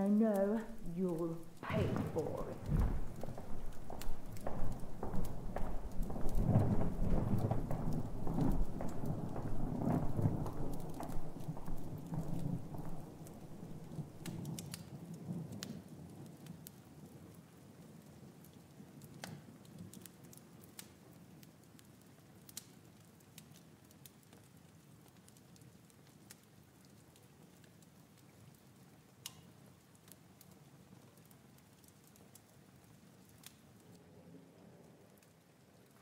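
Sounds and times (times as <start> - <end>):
soft clicks and crackles: 0.3 - 36.0
low rumble: 0.6 - 9.0.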